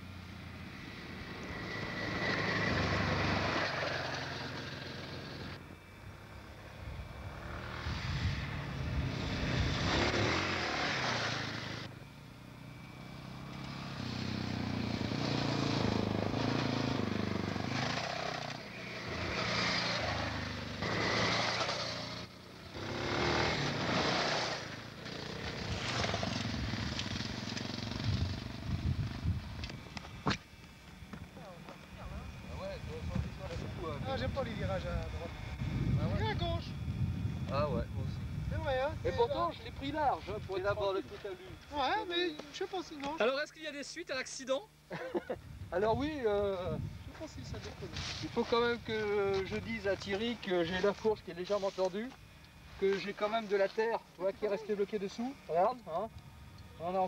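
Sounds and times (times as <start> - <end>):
motorcycle engine revving: 0.0 - 5.7, 6.5 - 30.4
off-road motorcycles passing: 0.0 - 42.7, 45.7 - 56.1, 56.7 - 57.0.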